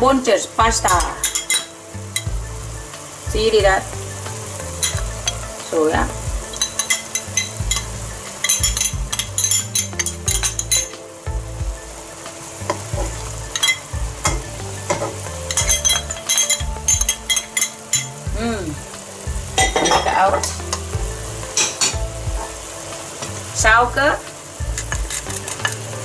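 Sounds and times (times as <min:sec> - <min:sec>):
food sizzling in a wok: 0:00.0 - 0:26.0
metal spoon scraping and clinking: 0:01.1 - 0:02.3, 0:06.6 - 0:10.9, 0:15.5 - 0:18.2.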